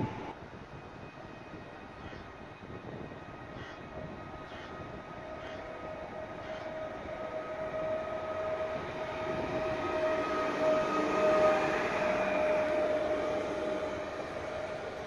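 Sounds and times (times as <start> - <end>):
electric train rolling past: 0.0 - 15.0
train whine: 0.0 - 15.0.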